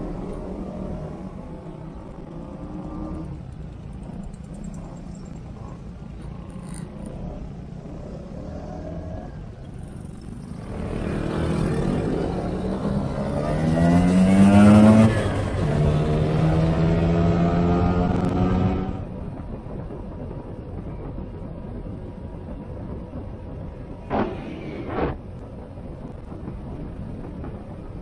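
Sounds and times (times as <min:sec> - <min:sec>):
wind and road noise: 0:00.0 - 0:28.0
scooter engine accelerating: 0:10.2 - 0:19.2.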